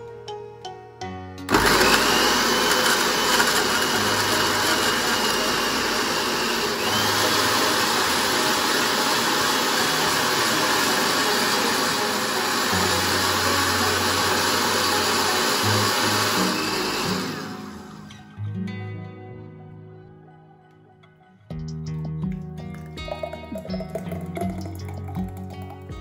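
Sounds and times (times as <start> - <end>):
blender running: 1.5 - 18.2.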